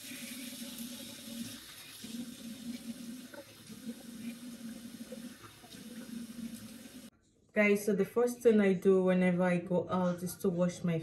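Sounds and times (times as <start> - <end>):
tap running into basin: 0.0 - 7.1.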